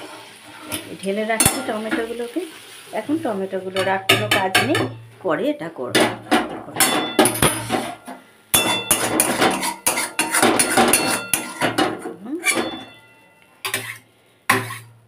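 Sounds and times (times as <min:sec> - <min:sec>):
spatula scraping metal pan: 0:07.2 - 0:15.0.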